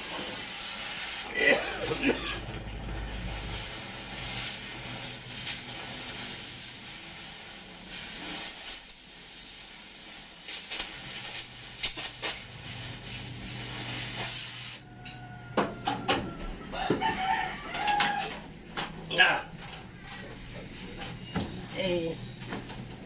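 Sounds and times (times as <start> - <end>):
cutting torch hissing: 0.0 - 2.3, 2.9 - 14.9.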